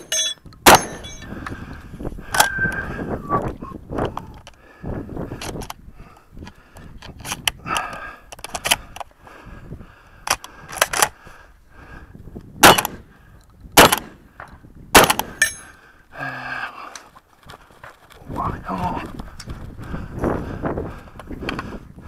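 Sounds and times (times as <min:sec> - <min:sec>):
steel target ringing: 0:00.0 - 0:01.2
shotgun shots: 0:00.6 - 0:01.2, 0:12.6 - 0:13.0, 0:13.8 - 0:14.2, 0:15.0 - 0:15.4.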